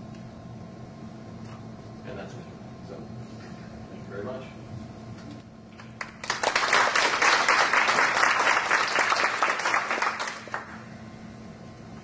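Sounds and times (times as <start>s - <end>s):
audience applauding: 5.9s - 10.8s.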